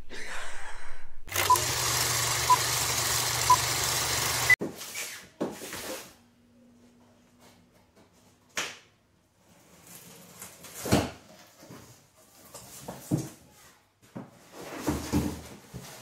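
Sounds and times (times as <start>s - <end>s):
engine running: 1.3s - 4.6s.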